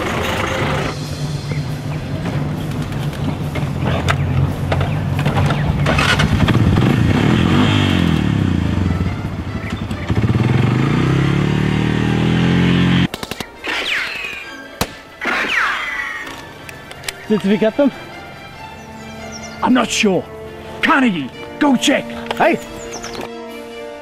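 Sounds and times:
quad bike engine revving: 0.0 - 13.1
falling whines: 9.6 - 17.3.

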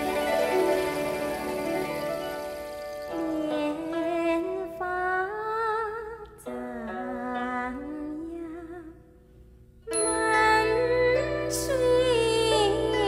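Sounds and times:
woman singing slow melody: 3.2 - 9.0, 9.9 - 13.0.

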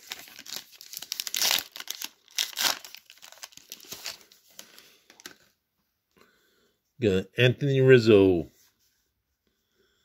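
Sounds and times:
plastic wrapper tearing and crinkling: 0.0 - 5.5.

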